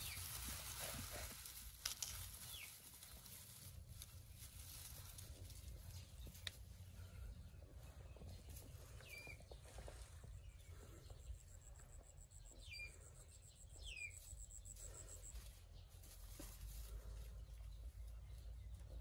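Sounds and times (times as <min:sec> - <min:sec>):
bird chirping: 0:05.5 - 0:16.4.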